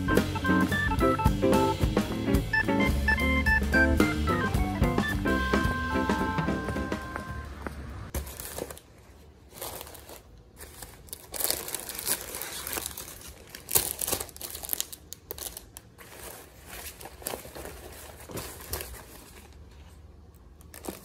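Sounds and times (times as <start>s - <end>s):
plastic wrap crinkling: 8.1s - 21.0s
fabric bag rustling: 15.5s - 20.1s.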